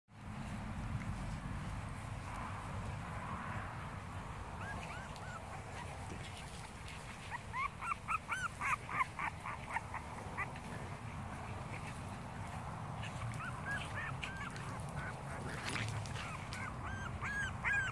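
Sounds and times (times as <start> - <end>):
dogs yipping: 4.3 - 17.9.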